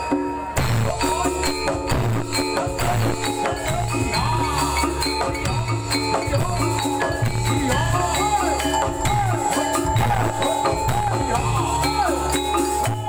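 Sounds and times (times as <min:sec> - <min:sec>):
drum strokes: 0:00.0 - 0:13.0
metallophone notes: 0:00.0 - 0:13.0.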